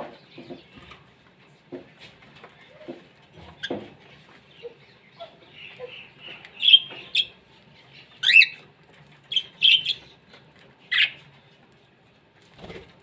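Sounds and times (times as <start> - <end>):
parrots squawking and chirping: 2.7 - 10.2, 10.8 - 11.3.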